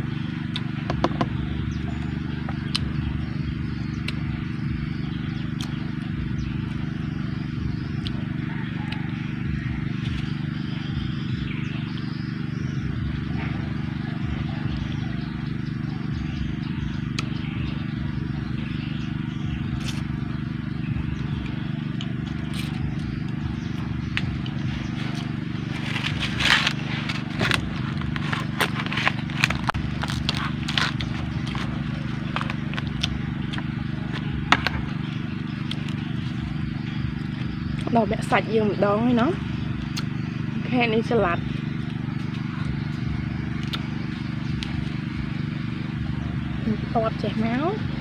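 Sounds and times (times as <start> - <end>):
low hum: 0.0 - 48.0
crunchy clicks: 21.4 - 37.9, 41.5 - 46.0
person chewing: 21.9 - 23.1, 24.2 - 34.9.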